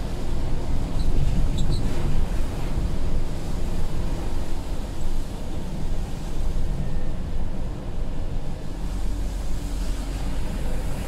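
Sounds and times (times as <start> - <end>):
tyres hissing on wet road: 8.4 - 11.0.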